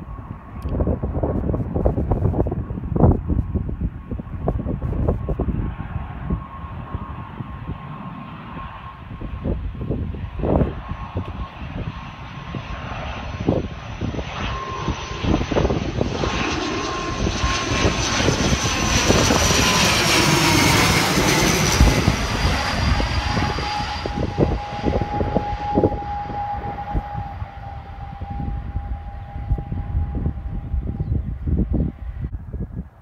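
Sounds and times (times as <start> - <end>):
turboprop airliner passing overhead: 0.0 - 33.0
wind buffeting microphone: 0.0 - 33.0.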